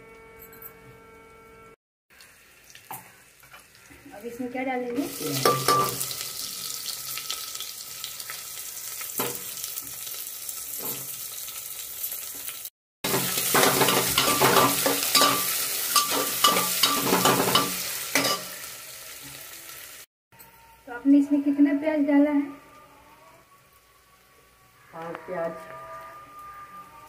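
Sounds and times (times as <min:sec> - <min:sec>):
onions sizzling in hot oil: 0:02.1 - 0:20.1.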